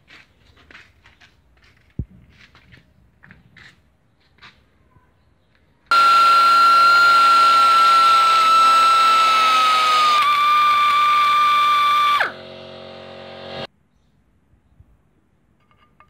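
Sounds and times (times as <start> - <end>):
rotary tool grinding whine: 5.9 - 13.7.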